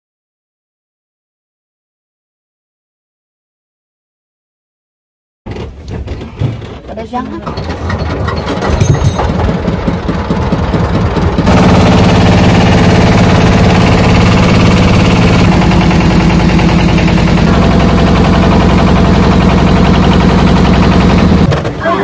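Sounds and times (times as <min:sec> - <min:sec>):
small boat engine running: 0:07.7 - 0:22.0
boat wake splashing: 0:11.5 - 0:22.0.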